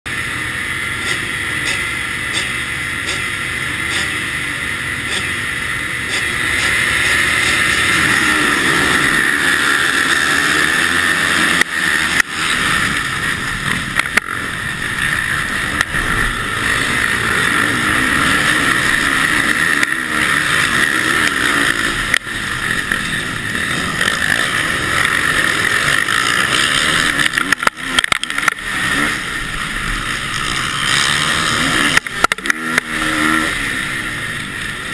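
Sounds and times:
motocross bike engine: 0.0 - 34.9
other motocross bikes racing: 0.1 - 34.9.

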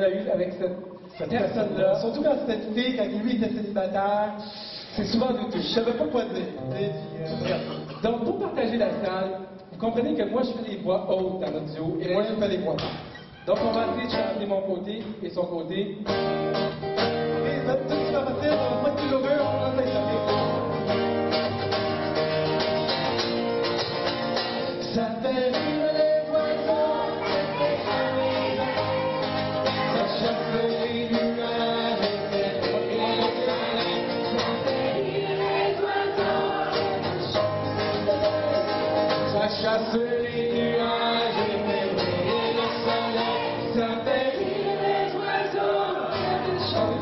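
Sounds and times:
acoustic guitar: 0.0 - 47.0
two men singing in harmony: 24.8 - 47.0.

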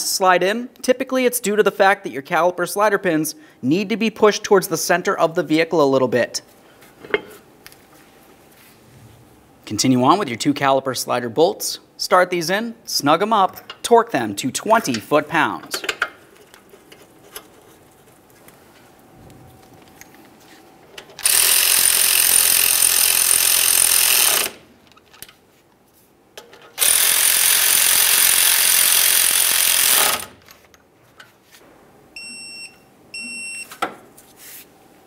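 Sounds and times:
torque wrench beeping: 21.2 - 24.6, 26.8 - 30.3
power ratchet spinning: 21.2 - 24.7, 26.8 - 30.4.

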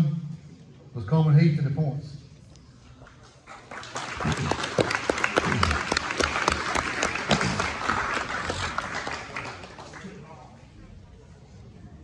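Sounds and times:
crowd applauding: 3.2 - 10.6.

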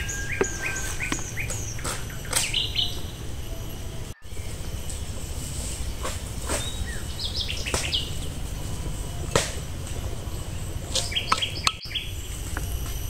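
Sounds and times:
birds chirping: 0.0 - 13.0
steady low rumble: 0.0 - 13.0.

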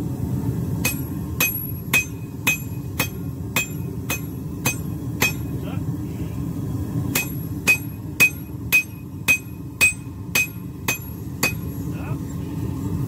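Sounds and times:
steady low rumble: 0.0 - 13.0
hammer ringing on anvil: 0.8 - 5.6, 7.1 - 11.8.

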